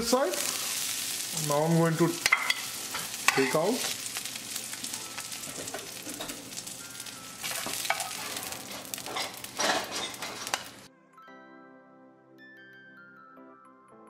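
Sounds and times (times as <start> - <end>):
fish sizzling in a frying pan: 0.0 - 10.9
metal turner scraping a pan: 7.4 - 10.8.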